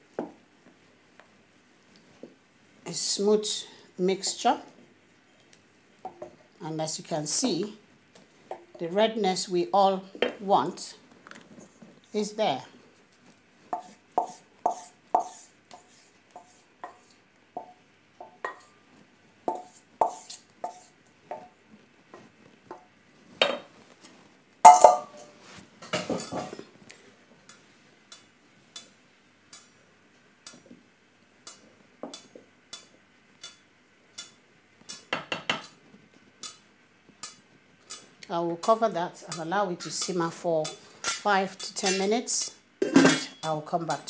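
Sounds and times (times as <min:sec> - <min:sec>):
spoon tapping in metal pan: 0:17.6 - 0:18.7, 0:24.7 - 0:25.3
metal bowl clattering down: 0:24.7 - 0:25.3, 0:42.8 - 0:43.4
wooden spoon knocking metal bowl: 0:24.7 - 0:25.3.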